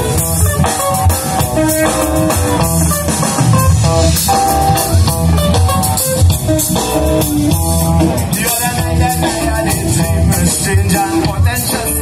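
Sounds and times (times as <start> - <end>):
band music with guitar and drums: 0.0 - 12.0.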